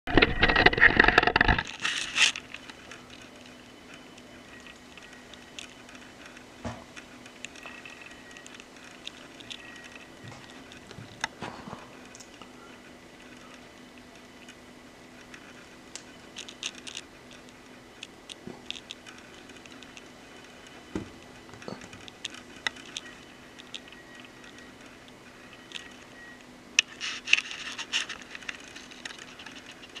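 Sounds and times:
handling clicks and scrapes: 0.1s - 13.7s, 26.8s - 30.0s
faint steady hum: 0.1s - 30.0s.

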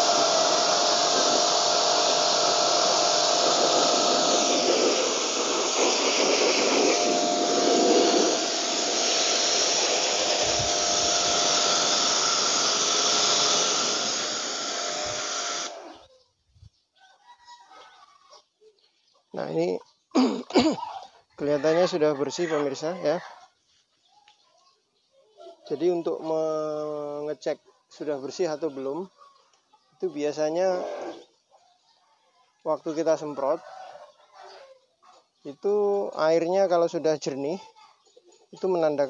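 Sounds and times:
water spray hissing: 0.0s - 15.8s
pressure washer humming: 0.0s - 15.9s.

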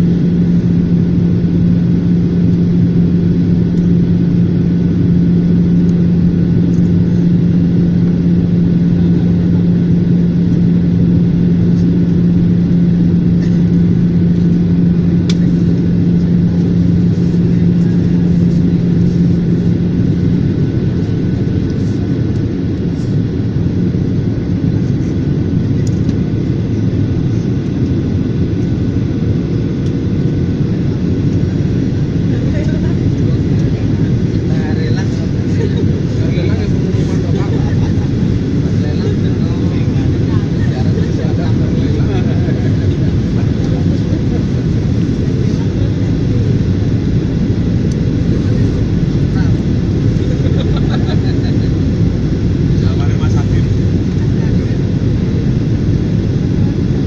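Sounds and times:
jet engine rumble in cabin: 0.0s - 57.0s
steady low drone: 0.0s - 57.0s.

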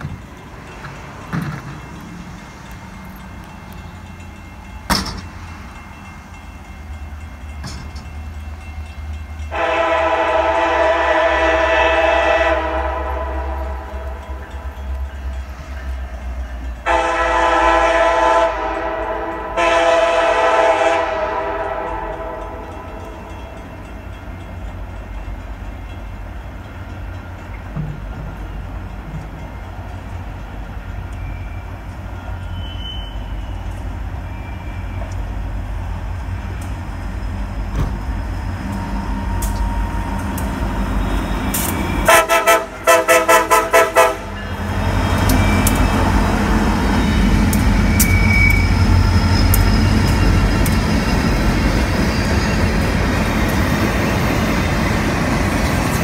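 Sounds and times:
locomotive air horn: 9.5s - 14.4s, 16.8s - 23.0s, 41.0s - 49.1s.

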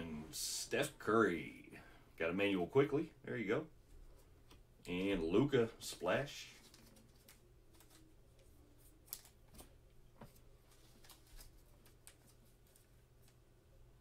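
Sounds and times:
low room hum: 0.0s - 14.0s
cards ticking and rustling: 6.4s - 13.4s.

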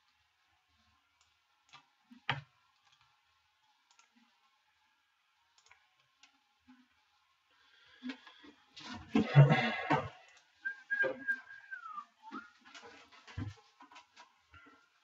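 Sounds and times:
computer mouse clicks: 1.2s - 3.1s, 3.8s - 4.2s, 5.5s - 6.4s.

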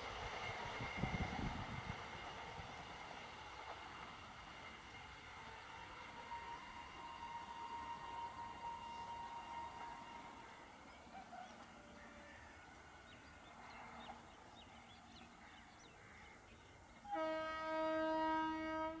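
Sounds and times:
train horn blast: 4.0s - 10.8s, 17.0s - 19.0s.

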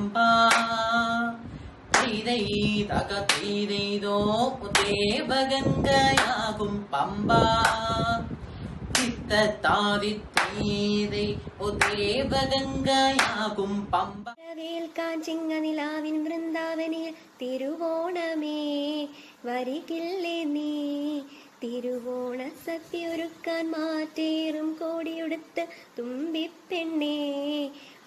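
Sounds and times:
man singing: 0.0s - 1.4s, 2.0s - 8.4s, 9.0s - 14.5s
hand claps: 0.5s - 0.8s, 1.9s - 2.2s, 3.2s - 3.6s, 4.7s - 5.0s, 6.1s - 6.4s, 7.6s - 7.9s, 8.9s - 9.2s, 10.3s - 10.7s, 11.8s - 12.1s, 13.1s - 13.5s.

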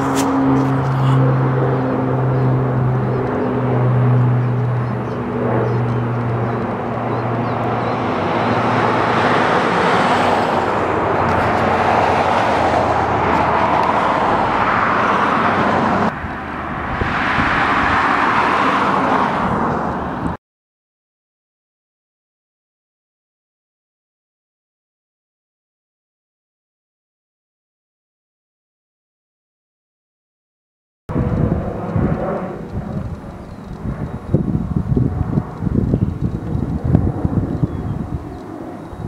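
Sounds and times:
aircraft rushing noise: 0.0s - 20.4s, 31.1s - 39.0s
propeller plane drone: 0.0s - 20.4s, 31.1s - 39.0s.

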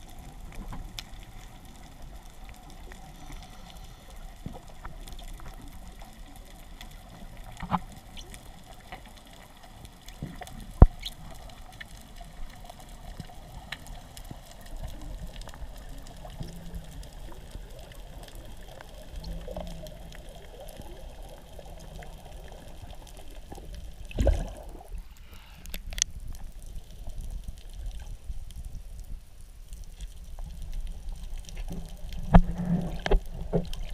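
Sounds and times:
muffled underwater water wash: 0.0s - 33.9s
rush of water: 24.0s - 25.0s.

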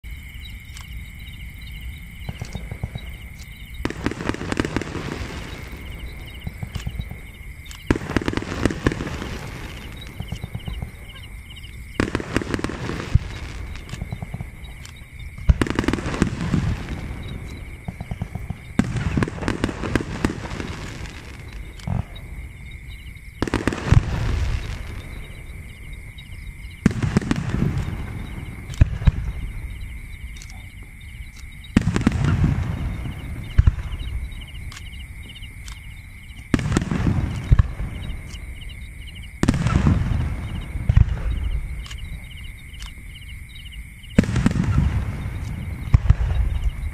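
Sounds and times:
fireworks popping and crackling: 2.2s - 22.5s, 23.3s - 25.8s, 26.8s - 29.8s, 31.4s - 34.8s, 36.4s - 38.6s, 39.4s - 42.2s, 44.2s - 46.9s.

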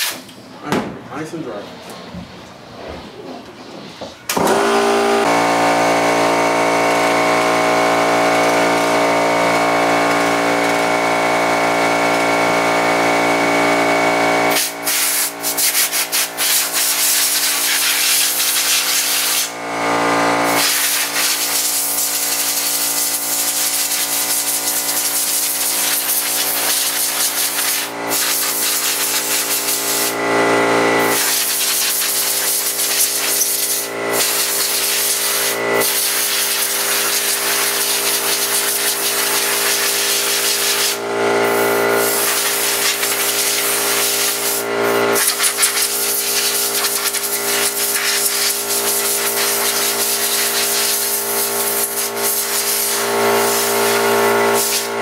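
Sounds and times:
compressed air hissing from blow gun: 14.5s - 19.5s, 31.2s - 53.8s, 54.6s - 54.9s.

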